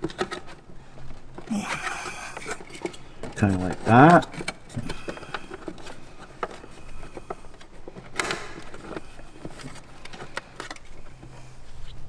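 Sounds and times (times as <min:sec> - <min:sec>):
tools clicking and knocking on parts: 0:01.3 - 0:10.9.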